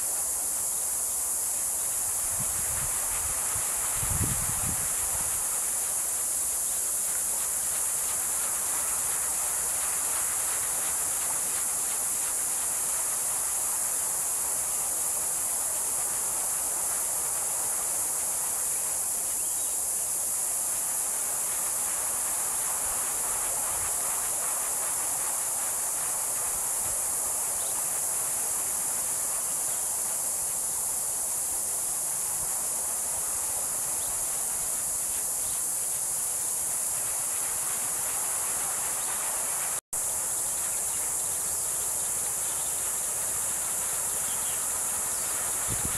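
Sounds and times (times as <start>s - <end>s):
steady high-pitched hiss: 0.0s - 45.9s
wind turbine rotor rushing: 2.2s - 5.6s, 45.3s - 45.9s.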